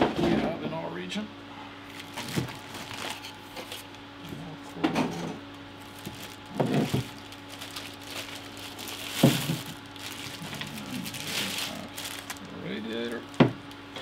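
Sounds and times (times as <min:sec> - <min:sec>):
plastic wrapping crinkling: 0:01.9 - 0:04.5, 0:05.5 - 0:14.0.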